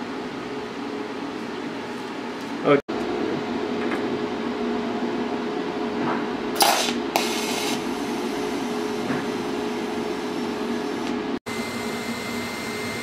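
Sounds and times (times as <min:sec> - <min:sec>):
welding arc buzzing hum: 0:02.9 - 0:13.0.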